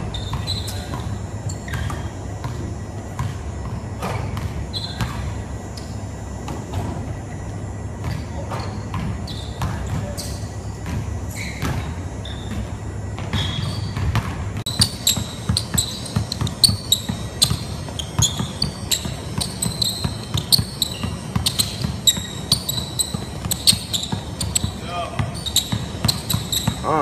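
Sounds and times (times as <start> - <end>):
sneaker squeaks on wood: 0.0 - 2.6, 4.0 - 6.0, 8.0 - 27.0
basketball bouncing on wooden floor: 3.2 - 5.2, 8.0 - 10.1, 10.8 - 11.9, 12.5 - 27.0.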